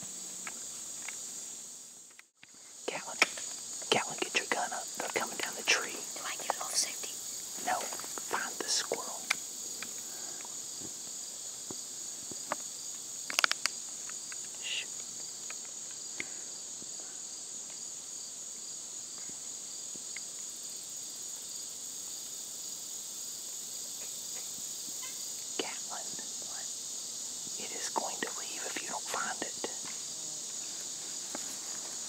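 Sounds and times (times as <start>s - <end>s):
insect chorus trilling: 0.0s - 32.0s
sharp clicks: 13.3s - 13.7s.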